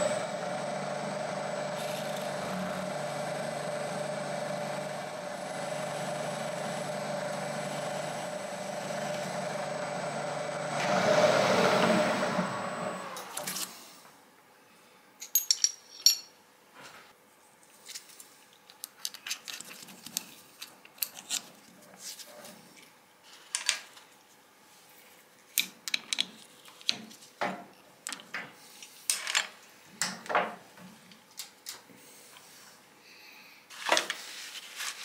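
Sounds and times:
drill bit set on steel table: 0.0s - 13.9s
metal clinks and rattles: 15.2s - 16.3s.

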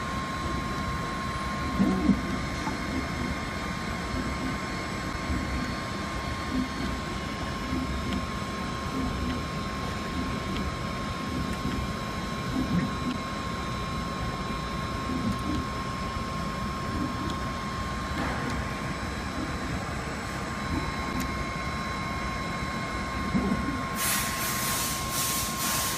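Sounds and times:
hiss: 24.0s - 25.9s.

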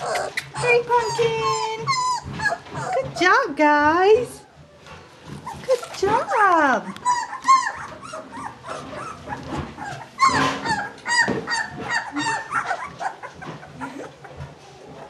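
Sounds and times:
puppies whining: 0.0s - 15.0s.

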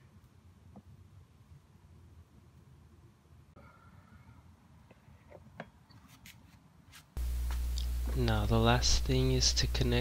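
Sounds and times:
faint low room hum: 6.8s - 10.0s.

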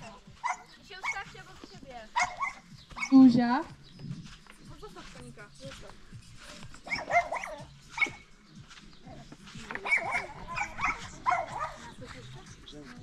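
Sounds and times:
dog barking: 0.0s - 1.4s, 2.1s - 3.3s, 6.8s - 8.3s, 9.8s - 12.0s.

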